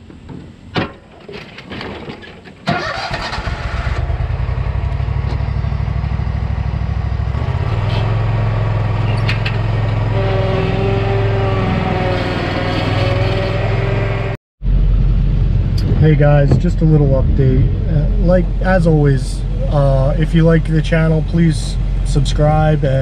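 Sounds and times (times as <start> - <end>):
engine running: 2.7 - 23.0
high steady hum: 14.6 - 23.0.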